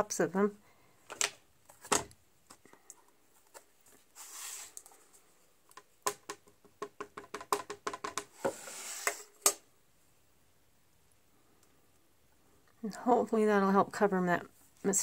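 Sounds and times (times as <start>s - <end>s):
soft brushing sliding hiss: 3.3s - 5.5s, 8.3s - 9.5s.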